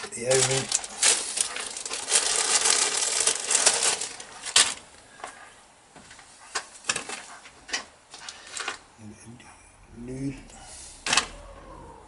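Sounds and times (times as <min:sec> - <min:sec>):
hands rummaging rustle: 0:00.0 - 0:05.4.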